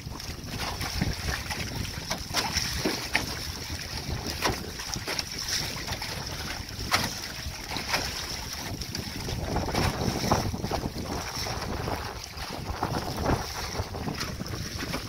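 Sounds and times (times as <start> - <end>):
water rushing along hull: 0.0 - 15.0
water splashing against boat: 0.0 - 15.0
wind buffeting microphone: 0.0 - 15.0.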